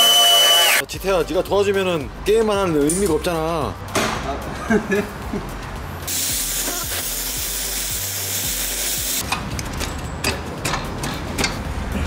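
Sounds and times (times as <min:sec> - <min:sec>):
torch flame hissing: 0:06.1 - 0:09.2.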